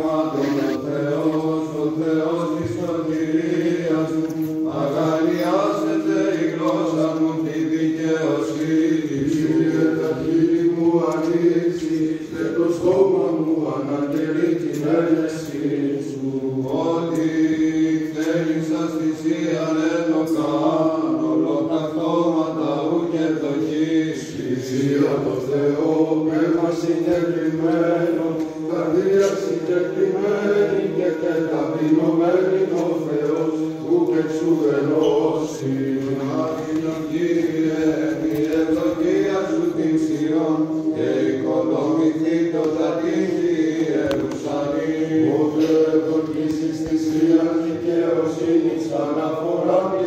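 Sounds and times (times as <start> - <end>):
person chanting a winding melody: 0.1 - 1.6.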